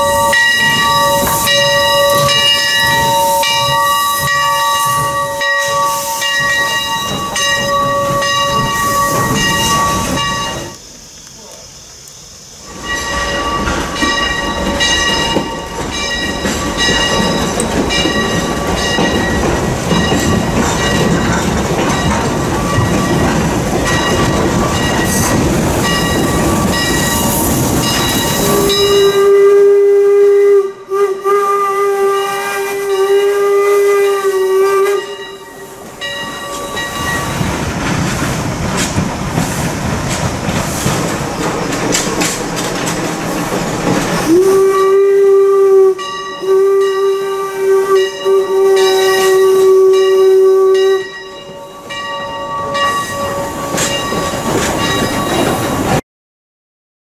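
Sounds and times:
steam whistle blasts: 0.0s - 10.8s, 28.2s - 35.8s, 44.2s - 53.8s
train running noise: 0.0s - 56.0s.

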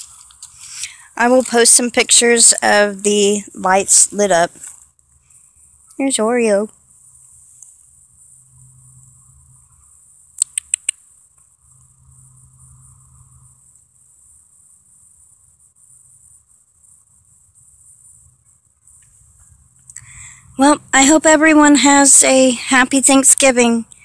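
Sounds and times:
crickets chirping: 0.0s - 24.0s
sharp clicks: 10.4s - 11.0s.

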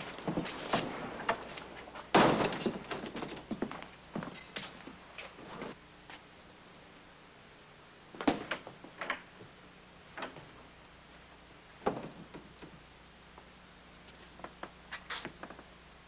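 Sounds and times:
faint steady hum: 0.0s - 16.0s
knocks and thuds: 2.1s - 3.8s.

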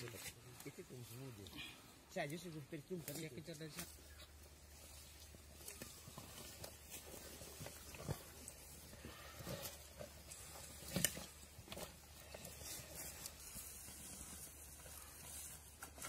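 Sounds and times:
rustling dry leaf litter: 2.8s - 16.0s.

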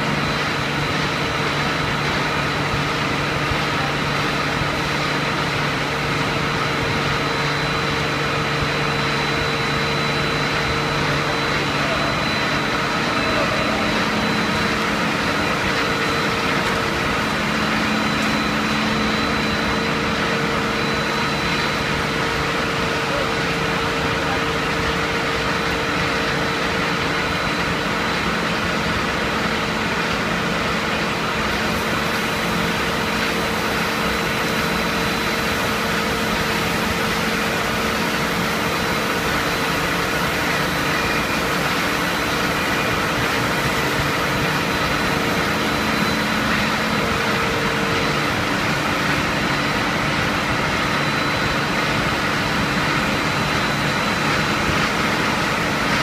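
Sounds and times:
machine drone of motors and rollers: 0.0s - 56.0s
thin high whine: 6.4s - 26.5s.

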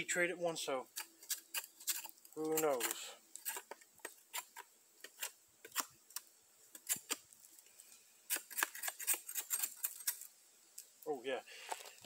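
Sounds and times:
knife scraping bark off stick: 0.9s - 7.4s, 8.3s - 10.9s.

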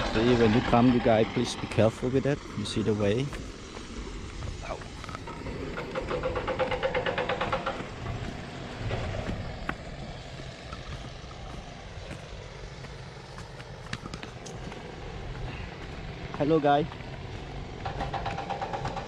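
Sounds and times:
footsteps on stone: 3.3s - 5.3s, 7.7s - 17.6s.

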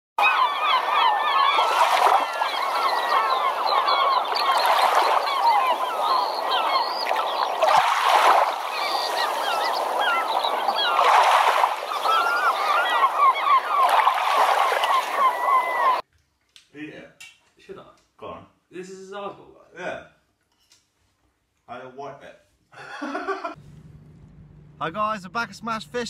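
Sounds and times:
many birds calling: 0.2s - 16.0s.

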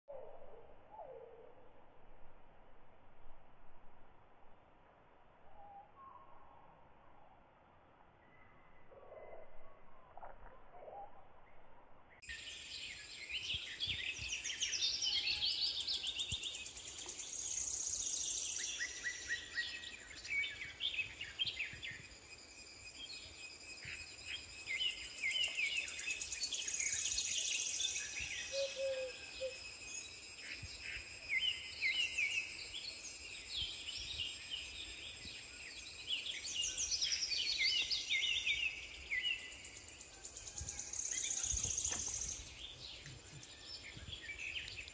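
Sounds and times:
insects droning: 12.2s - 44.9s
birds chirping and calling: 23.8s - 39.5s.

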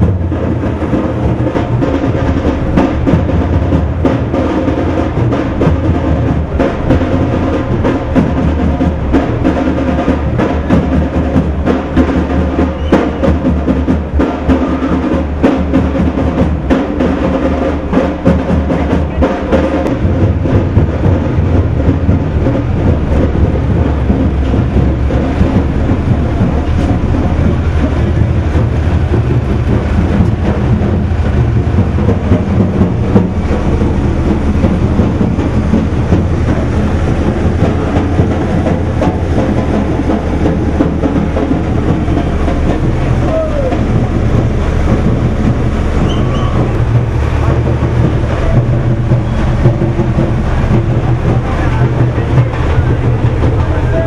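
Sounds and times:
fast drumming: 0.0s - 54.0s
low rumble: 0.0s - 54.0s.

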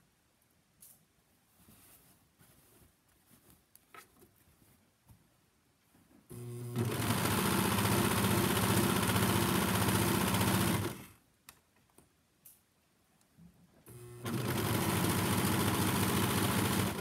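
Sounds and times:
overlock sewing machine stitching: 6.3s - 11.2s, 13.9s - 17.0s.

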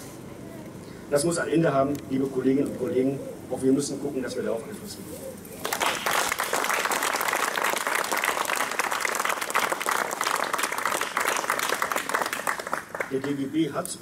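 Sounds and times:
crowd applauding: 5.6s - 13.5s.

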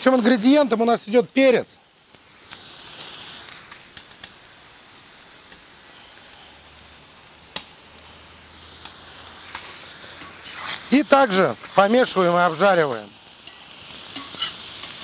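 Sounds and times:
vegetables sizzling in hot oil: 0.0s - 15.0s.

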